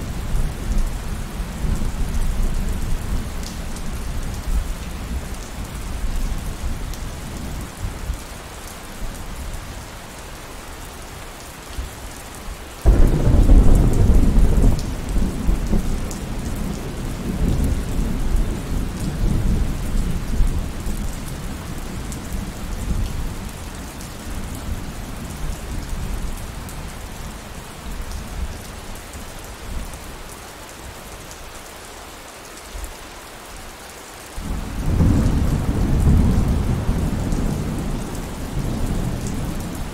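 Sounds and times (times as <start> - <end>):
steady rain falling: 0.0 - 39.9
thunderclap rolling rumble: 12.8 - 20.6, 34.4 - 39.9.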